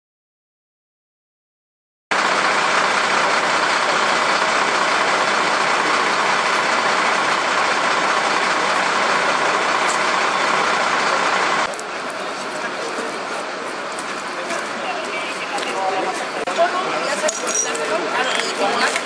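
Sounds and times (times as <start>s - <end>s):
fire engine idling: 2.1s - 17.1s.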